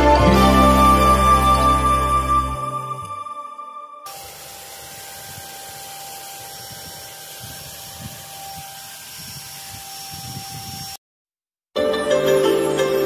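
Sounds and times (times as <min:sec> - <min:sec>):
music: 0:00.0 - 0:04.1, 0:11.8 - 0:13.0
electric paint sprayer whining: 0:04.1 - 0:11.0.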